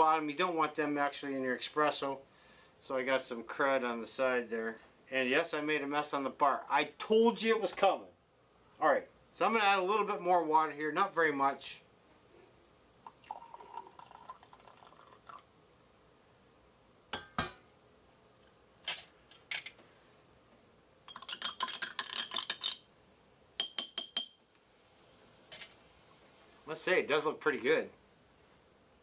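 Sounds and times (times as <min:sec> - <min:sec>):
water trickling into glass: 0:13.0 - 0:15.5
glass and metal clinking: 0:17.2 - 0:17.6, 0:23.6 - 0:24.4.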